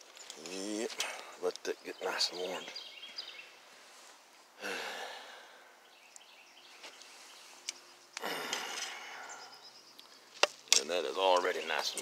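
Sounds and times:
faint outdoor background: 0.0 - 12.0
person sighing: 4.6 - 5.7, 8.2 - 9.6.

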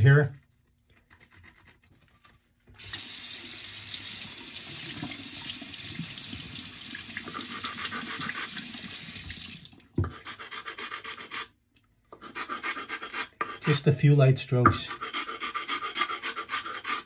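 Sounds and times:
sharpening stone scraping: 10.0 - 13.9, 14.8 - 17.0.

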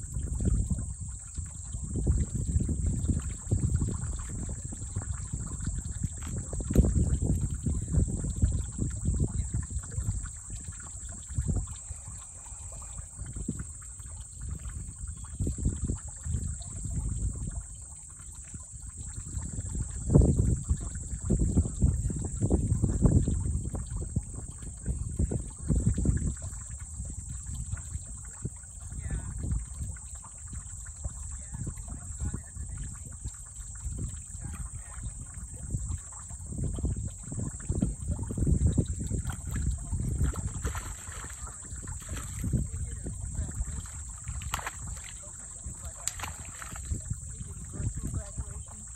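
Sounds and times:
turtles splashing in shallow water: 0.0 - 48.9.

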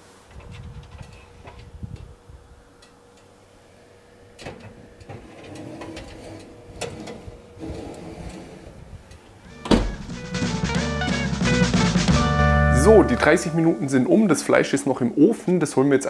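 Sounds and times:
pan sliding onto oven rack: 4.4 - 8.7
oven door thump: 9.5 - 10.2.

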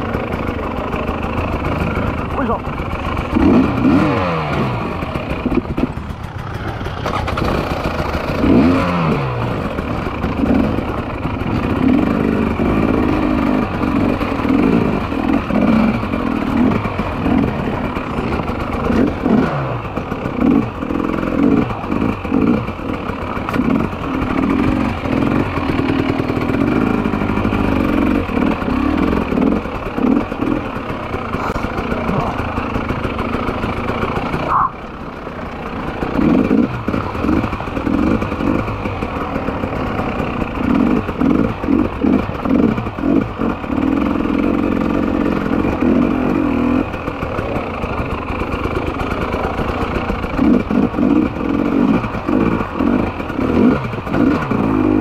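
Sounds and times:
motorcycle clatter: 0.0 - 55.0
motorcycle engine revving: 0.0 - 55.0.

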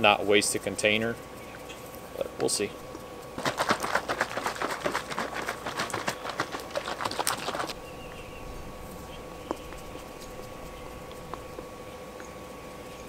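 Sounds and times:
plastic container rattling: 3.4 - 7.8.

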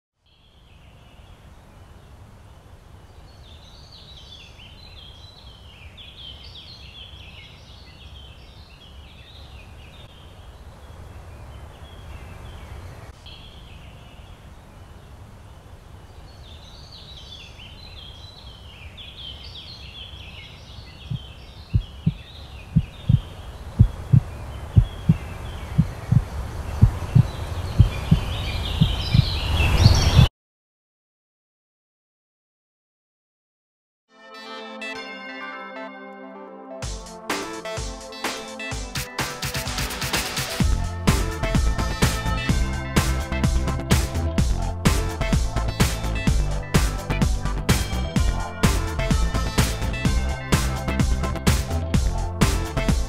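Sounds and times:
birds twittering: 0.3 - 30.3
heartbeat: 21.1 - 29.3, 40.6 - 53.0
low rumbling drone: 40.6 - 53.0.

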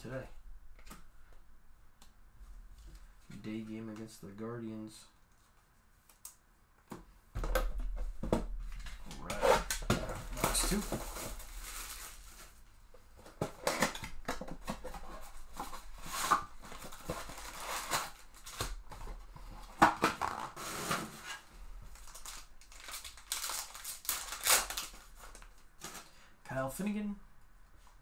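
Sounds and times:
foil pack crinkling: 9.6 - 12.6, 14.8 - 18.8, 21.2 - 26.2.

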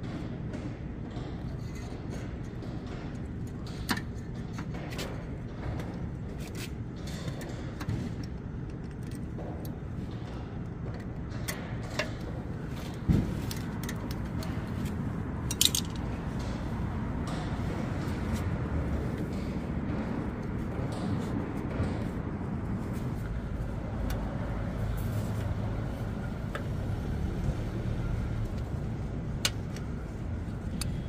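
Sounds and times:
steady low rumble: 8.2 - 31.0.

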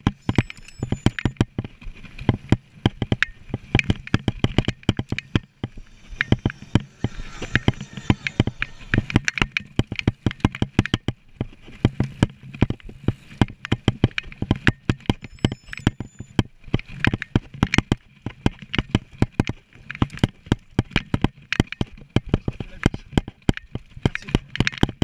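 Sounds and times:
bike clattering and rattling: 0.0 - 25.0
low rumble: 3.3 - 10.3.

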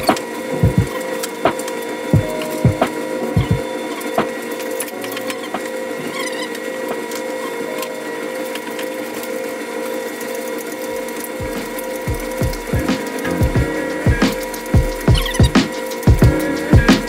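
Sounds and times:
steady hum: 10.8 - 17.0.

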